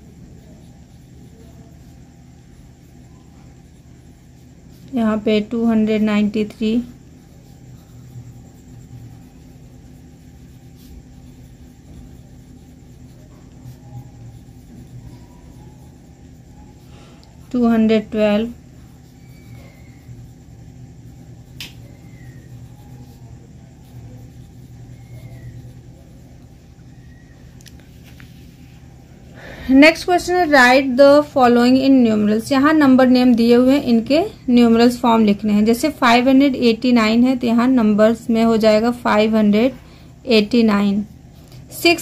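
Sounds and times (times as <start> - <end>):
low background rumble: 0.0 - 42.0
low hum: 0.0 - 42.0
pencil scratching on paper: 0.0 - 42.0
pen writing on paper: 6.7 - 16.9, 17.6 - 26.6.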